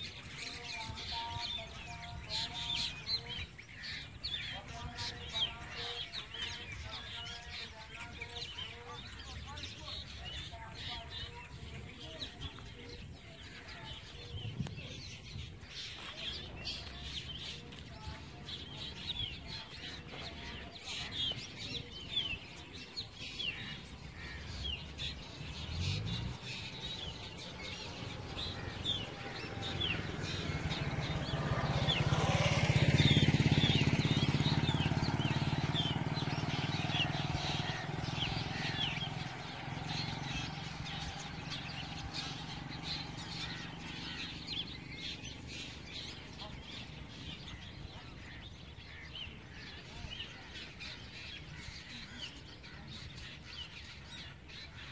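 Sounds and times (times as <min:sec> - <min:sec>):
birds chirping: 0:00.0 - 0:54.9
vehicle engine hum passing: 0:12.6 - 0:49.7.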